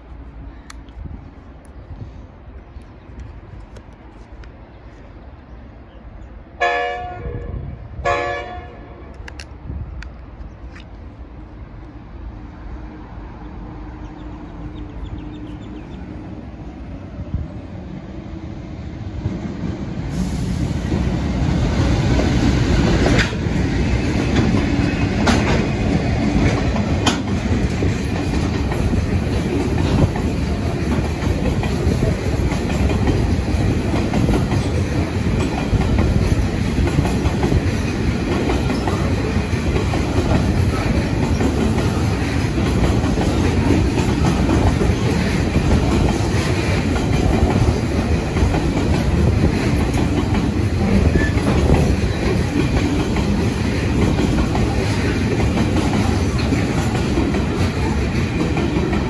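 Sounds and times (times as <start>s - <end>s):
train passing: 0.0s - 59.0s
wheels clicking over rail joints: 21.8s - 59.0s.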